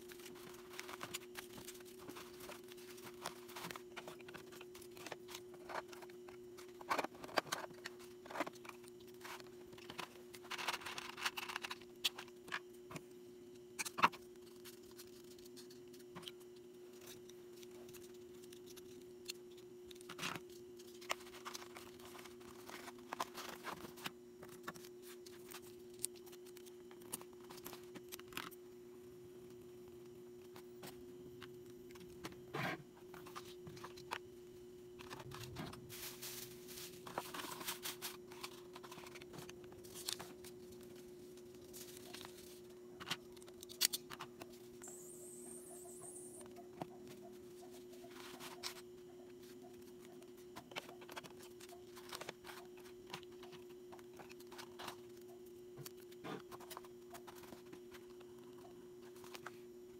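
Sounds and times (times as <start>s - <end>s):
packaging rustling and tearing: 0.0s - 12.3s
steady low hum: 0.0s - 59.9s.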